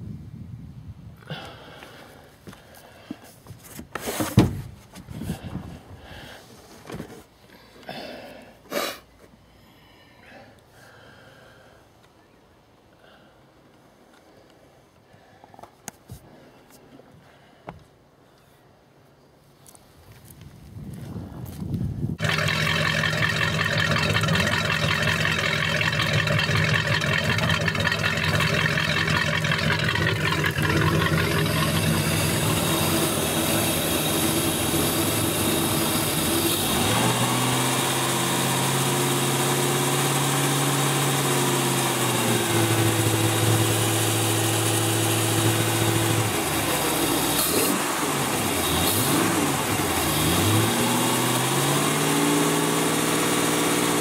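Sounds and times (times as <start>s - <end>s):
boat engine idling and revving: 22.2s - 54.0s.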